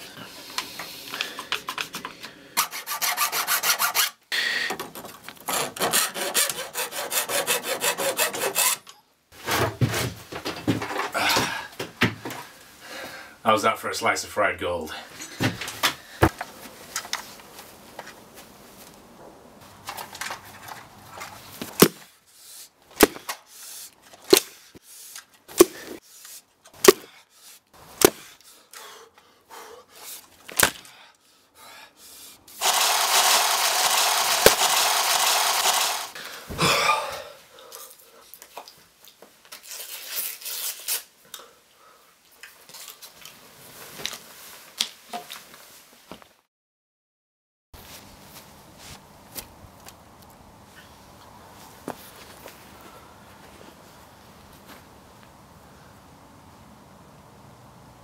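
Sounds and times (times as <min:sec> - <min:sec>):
hedge-trimmer motor whirring: 0:32.6 - 0:36.2.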